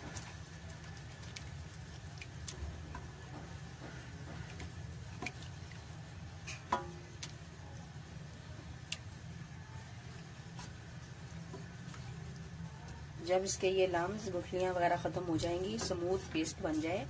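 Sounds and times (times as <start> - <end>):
spatula stirring sauce in pan: 0.0 - 7.5.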